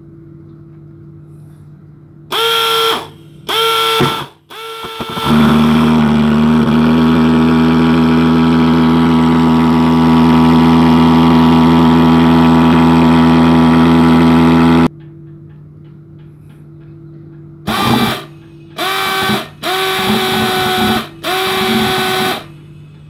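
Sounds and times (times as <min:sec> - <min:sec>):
fogging machine buzzing: 0:02.3 - 0:14.9, 0:17.6 - 0:23.0.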